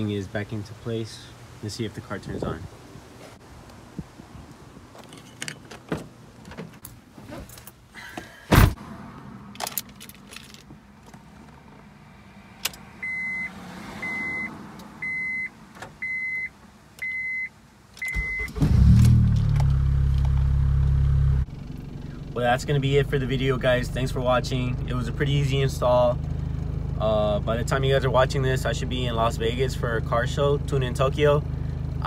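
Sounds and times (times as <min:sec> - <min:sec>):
keys jingling: 0:05.0 - 0:05.9, 0:09.6 - 0:10.8
car door shutting thump: 0:08.5 - 0:08.8
dashboard warning chime beeping: 0:13.0 - 0:18.6
car engine starting: 0:17.8 - 0:32.0.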